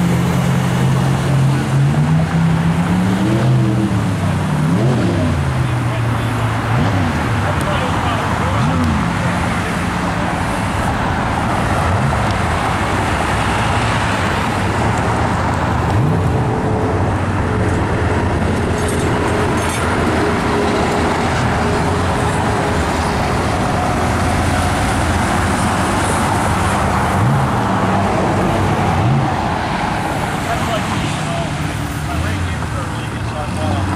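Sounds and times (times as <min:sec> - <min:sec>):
car engine accelerating: 0:00.0 - 0:33.9
road traffic passing: 0:00.0 - 0:33.9.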